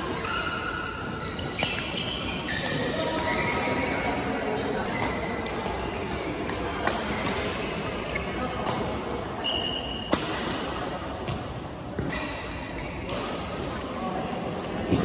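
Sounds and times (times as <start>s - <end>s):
shoe squeak: 0.0s - 6.5s, 8.0s - 8.8s, 9.4s - 10.1s, 11.8s - 13.1s
echoing background chatter: 0.0s - 15.0s
racket hitting shuttlecock: 4.8s - 7.8s, 10.0s - 12.3s.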